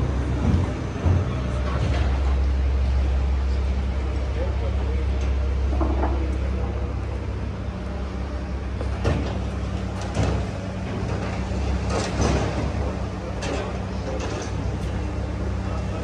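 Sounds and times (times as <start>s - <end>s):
heavy machinery droning: 0.0s - 16.0s
metallic clunks and knocks: 8.9s - 12.8s.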